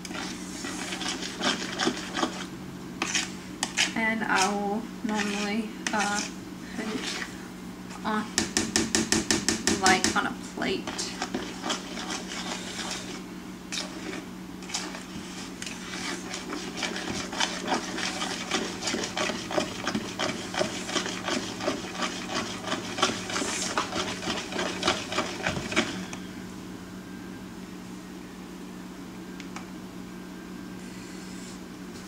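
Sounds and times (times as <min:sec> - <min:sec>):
utensil scraping a bowl: 0:00.0 - 0:07.4, 0:10.8 - 0:26.1.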